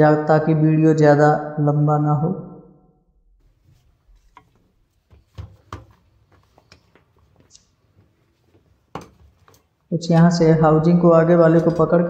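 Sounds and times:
tool clicking and knocking on workbench: 8.9 - 9.6.

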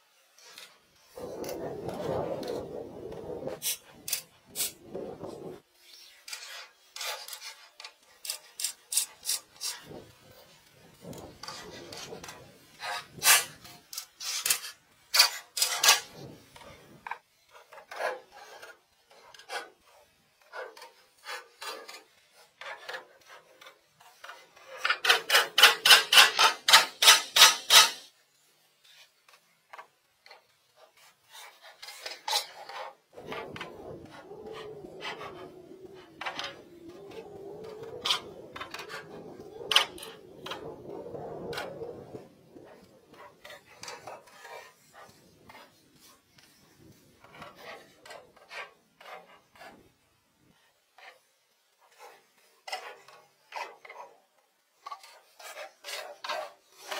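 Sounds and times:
scrapes and rubs on wood: 28.8 - 50.0, 54.8 - 56.9.

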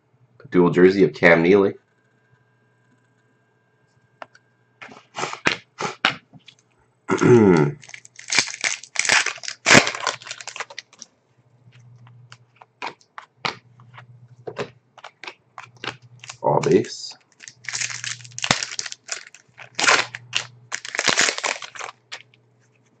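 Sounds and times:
cards snapping and shuffling: 4.8 - 6.6, 7.6 - 11.0, 12.3 - 22.3
person clearing throat: 7.1 - 7.8
foil wrapper tearing and crinkling: 7.8 - 11.0, 14.6 - 22.4.

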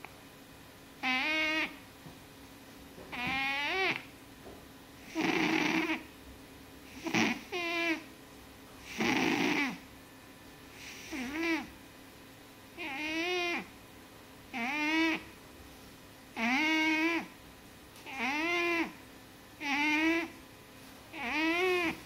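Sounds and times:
cat snoring: 3.2 - 4.0, 5.0 - 6.0, 6.9 - 8.0, 8.8 - 9.8, 10.8 - 11.7, 12.8 - 13.7, 14.5 - 15.3, 16.4 - 17.3, 18.1 - 19.0, 19.6 - 20.3, 21.2 - 22.0.

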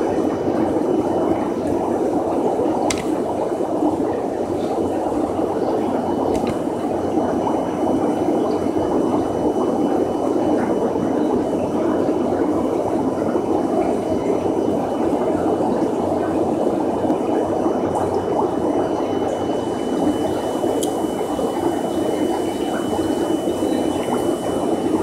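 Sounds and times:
aquarium water bubbling: 0.0 - 25.0
faint high whine: 17.7 - 25.0.

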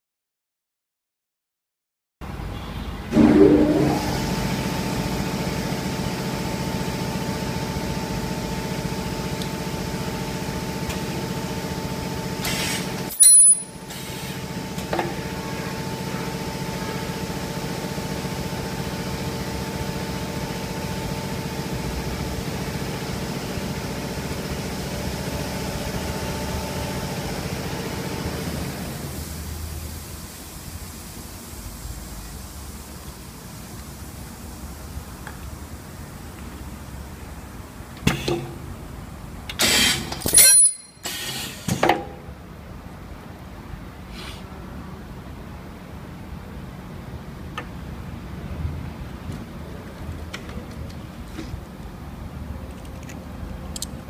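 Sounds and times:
loud high-pitched burst: 3.1 - 4.7.

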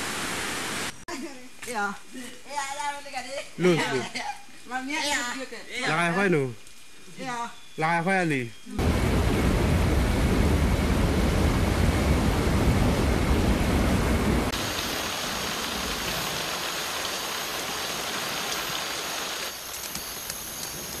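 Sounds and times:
rain falling on foliage: 0.0 - 21.0
waterfall rushing: 8.8 - 20.2.

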